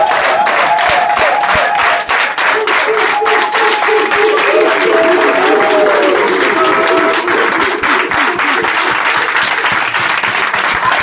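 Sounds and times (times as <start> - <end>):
people applauding: 0.0 - 11.0
raised voices: 2.5 - 9.4.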